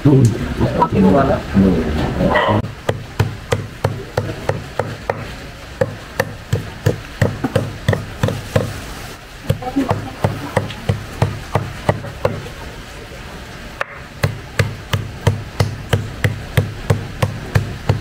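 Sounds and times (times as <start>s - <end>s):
cleaver chopping on wooden block: 2.8s - 8.8s, 9.5s - 12.4s, 13.8s - 18.0s.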